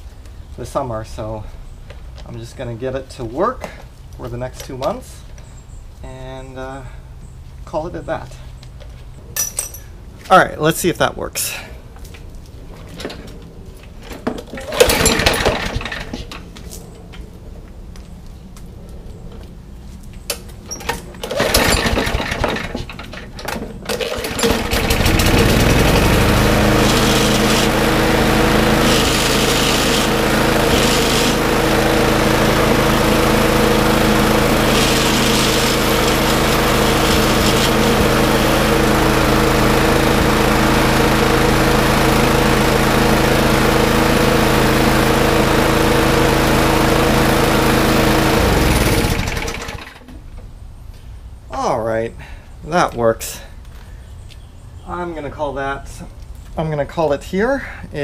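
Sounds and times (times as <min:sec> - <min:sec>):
lawn mower engine running: 0:14.3 - 0:16.5, 0:20.7 - 0:50.4
pull-start cord pulls: 0:14.5 - 0:16.3, 0:20.8 - 0:42.2.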